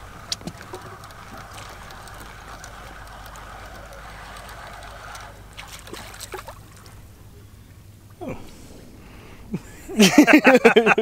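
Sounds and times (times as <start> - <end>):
fishing reel whirring: 0.0 - 6.7
splashing water: 0.0 - 7.2.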